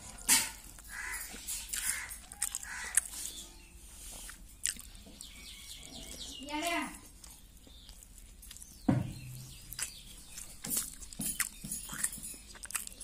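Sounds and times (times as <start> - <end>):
person chewing: 0.0 - 5.4, 7.1 - 8.9, 9.5 - 13.0
wet mouth clicks and smacks: 1.7 - 3.2, 4.3 - 4.9, 9.7 - 10.0, 10.8 - 13.0.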